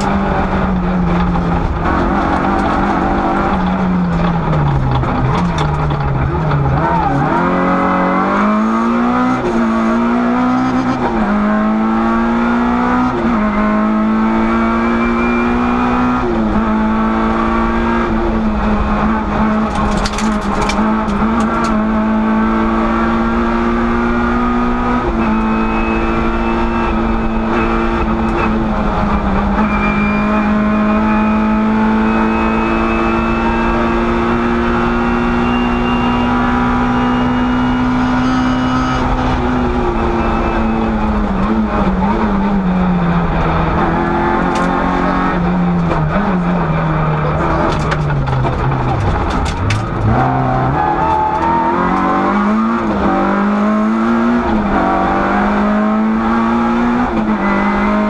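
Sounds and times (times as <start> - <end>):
car engine accelerating through gears: 0.0 - 58.0
brief clatter: 19.6 - 21.8.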